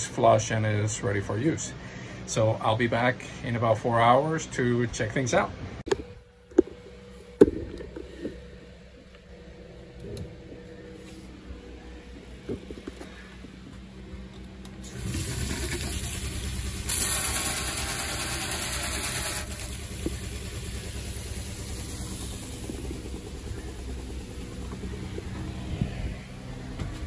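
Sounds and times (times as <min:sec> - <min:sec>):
water pump running: 0:14.7 - 0:27.0
faucet spraying into metal sink: 0:14.9 - 0:19.8.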